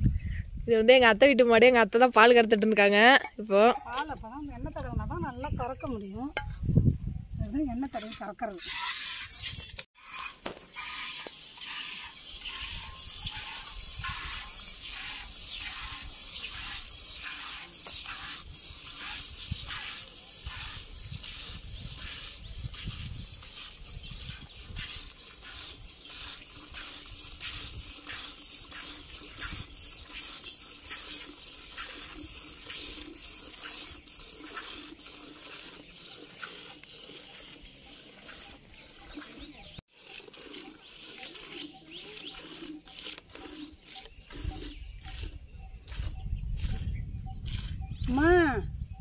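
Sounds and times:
milk squirting into steel pot: 10.0 - 45.3.

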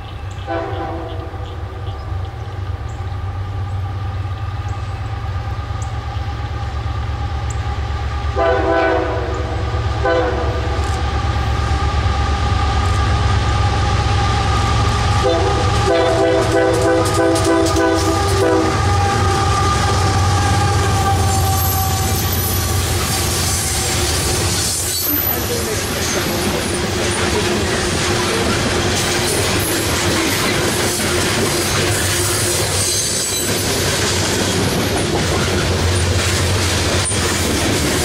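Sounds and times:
diesel locomotive engine rumble: 0.0 - 38.0
train air horn blasts: 0.4 - 1.6, 8.3 - 10.8, 14.4 - 24.0
train wheels clicking on rails: 10.6 - 38.0.

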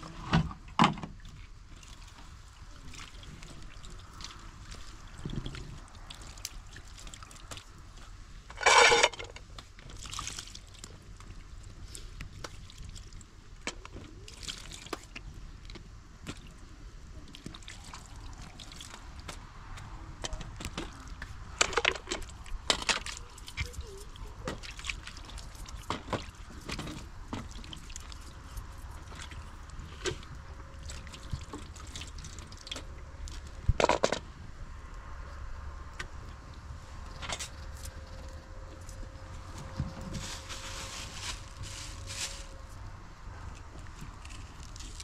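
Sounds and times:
water splashing: 23.0 - 29.8.

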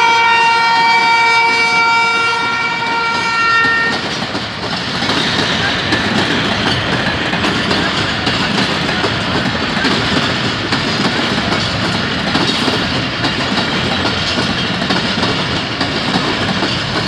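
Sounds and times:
locomotive air horn blast: 0.0 - 4.0
train coaches rumbling past: 0.0 - 17.0
wheels clattering over rail joints: 3.6 - 17.0.

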